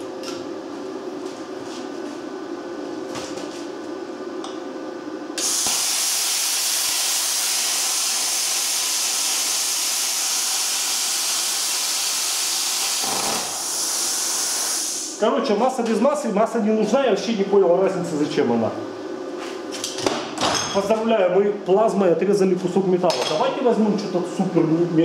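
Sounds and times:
plasma cutter hissing: 5.4 - 15.2.

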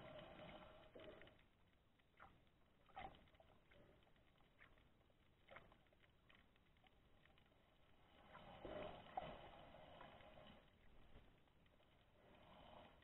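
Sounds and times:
muffled underwater ambience: 0.0 - 13.0
water noise: 0.0 - 13.0.

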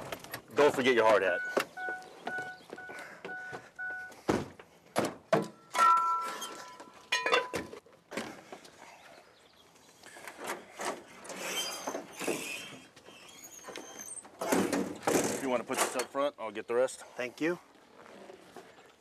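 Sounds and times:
door-open warning chime beeping: 1.3 - 4.2.

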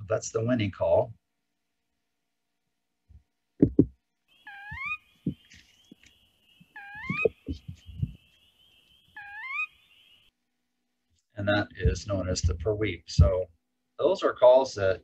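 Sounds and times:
low thumps: 3.1 - 4.0, 7.0 - 8.2, 11.5 - 13.5
bird whistled rising call: 4.4 - 10.3.

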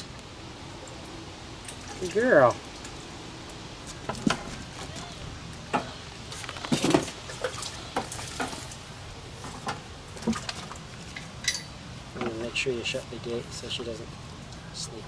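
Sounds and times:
water splashing and dripping: 1.6 - 12.2.

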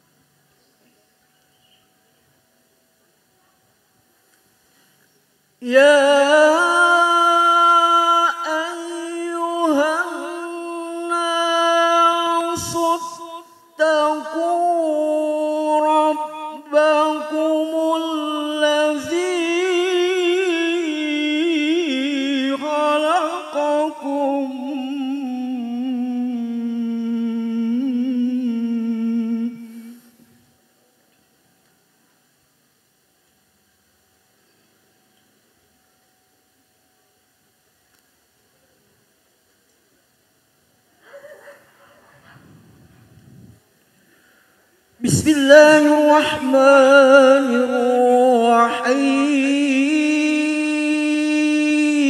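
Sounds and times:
man chanting recitation: 5.6 - 30.2, 45.0 - 52.0.

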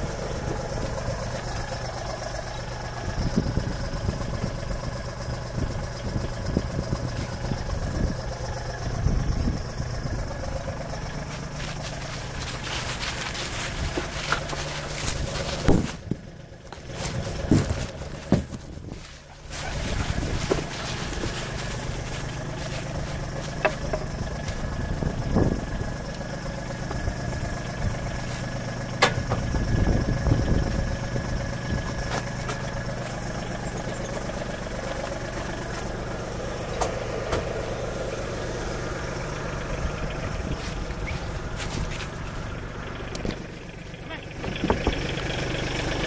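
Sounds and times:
low motor hum: 0.0 - 46.0
camera rig rustling and knocking: 11.4 - 24.6.

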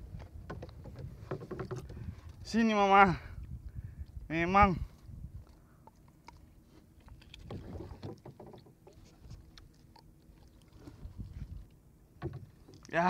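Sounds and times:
water lapping against a hull: 0.0 - 13.0
light knocks and clicks: 0.2 - 2.0, 12.2 - 12.9.

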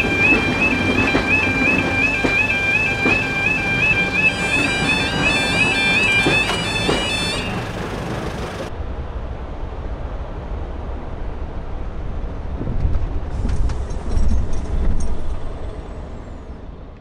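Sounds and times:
level crossing alarm warble: 0.0 - 8.7.

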